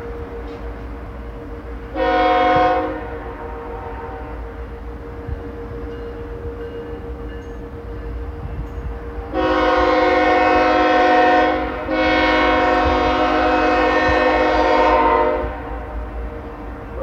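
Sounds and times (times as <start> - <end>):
locomotive air horn blasts: 1.9 - 4.8, 9.2 - 16.2.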